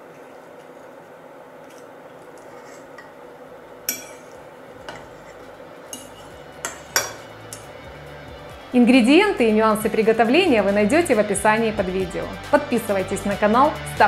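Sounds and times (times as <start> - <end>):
fork clinking on ceramic plate: 3.9 - 5.2, 5.9 - 7.7.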